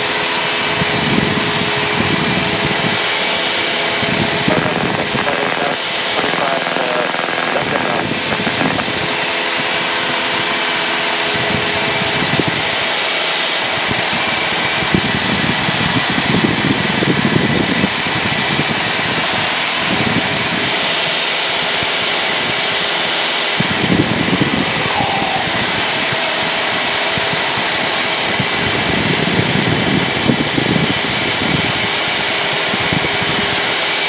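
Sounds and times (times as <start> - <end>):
aircraft engine drone: 0.0 - 34.0
low rumbles: 0.7 - 19.0, 23.6 - 31.9.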